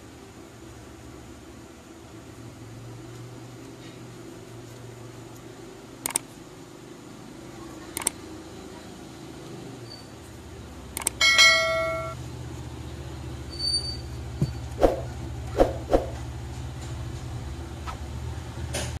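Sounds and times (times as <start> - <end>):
steady low hum: 0.0 - 19.0
click: 6.0 - 6.2, 8.0 - 8.2, 11.0 - 11.2
bell-like chime: 11.2 - 12.2.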